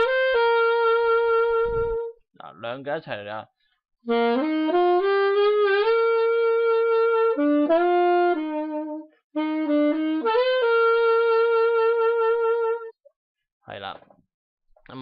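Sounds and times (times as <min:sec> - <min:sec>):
saxophone playing slow melody: 0:00.0 - 0:02.2, 0:04.0 - 0:13.0.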